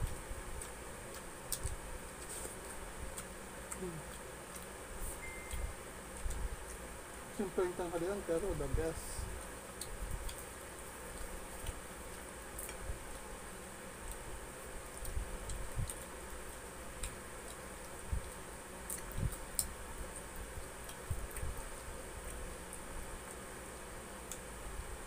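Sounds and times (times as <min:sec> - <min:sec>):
chewing clicks and smacks: 0:00.0 - 0:04.7, 0:09.4 - 0:10.5, 0:11.1 - 0:13.3, 0:14.9 - 0:21.6.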